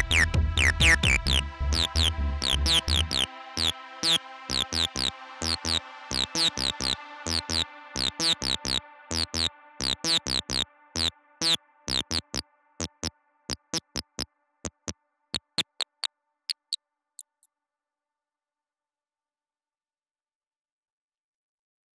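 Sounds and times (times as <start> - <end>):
drum machine beat: 0.0 - 17.5
held synth chord: 1.3 - 13.1.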